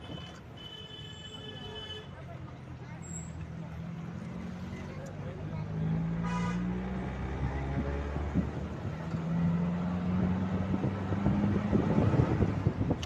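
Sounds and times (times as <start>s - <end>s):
short horn toot: 6.2s - 6.8s.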